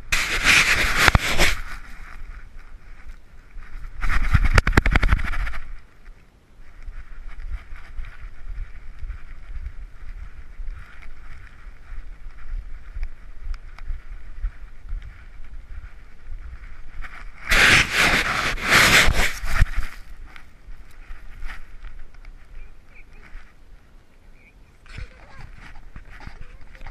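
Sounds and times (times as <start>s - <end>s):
camera grinding against sand: 0.0s - 2.5s, 3.7s - 5.8s, 16.6s - 23.5s
low wind-like rumble: 0.0s - 26.9s
camera knocking and rubbing: 0.1s - 2.0s, 3.9s - 5.8s, 17.0s - 20.1s, 24.9s - 26.9s.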